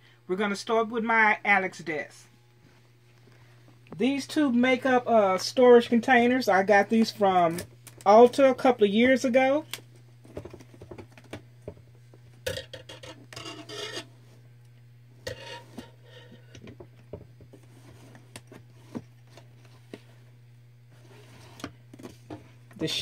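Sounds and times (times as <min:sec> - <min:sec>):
steady low hum: 0:00.0 - 0:23.0
rubbing and scraping: 0:13.0 - 0:14.1, 0:15.3 - 0:16.5, 0:20.9 - 0:22.3.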